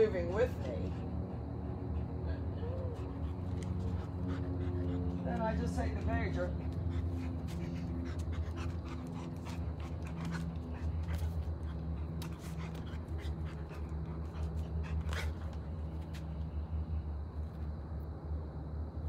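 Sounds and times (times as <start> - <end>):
dog breathing: 0.6 - 5.7, 6.3 - 15.7.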